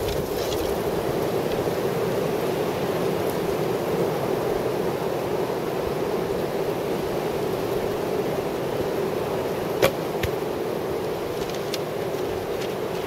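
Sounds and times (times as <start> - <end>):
rushing wind: 0.0 - 13.0.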